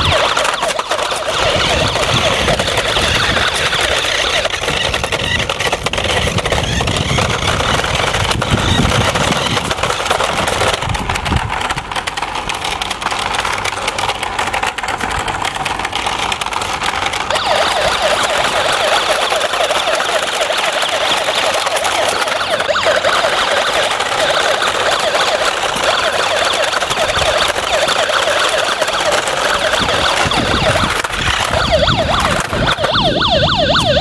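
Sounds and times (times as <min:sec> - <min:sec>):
steady noisy rush: 0:00.0 - 0:34.0
toy siren warbling: 0:00.0 - 0:34.0.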